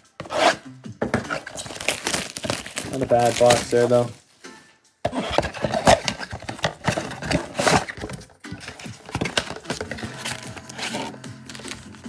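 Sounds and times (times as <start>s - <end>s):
cardboard scraping and rustling: 0.2s - 4.1s, 5.1s - 12.0s
foil wrappers crinkling: 1.4s - 4.3s.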